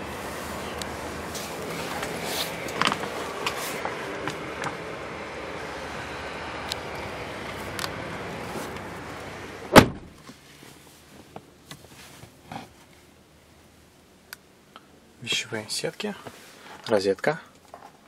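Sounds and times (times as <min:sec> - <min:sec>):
car door closing thud: 0:09.7 - 0:10.2.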